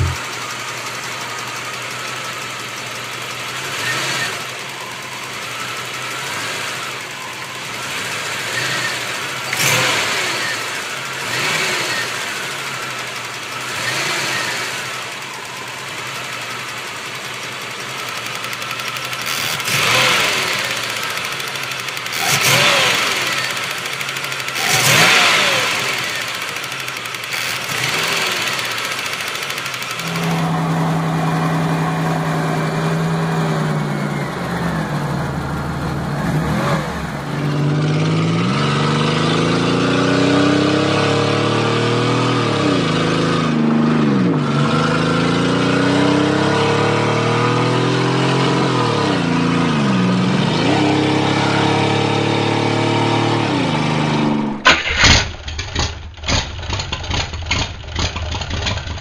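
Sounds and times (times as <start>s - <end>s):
engine revving in blips: 0.0s - 0.6s, 3.4s - 16.7s, 18.0s - 58.8s
engine idling: 0.0s - 38.0s, 54.3s - 59.0s.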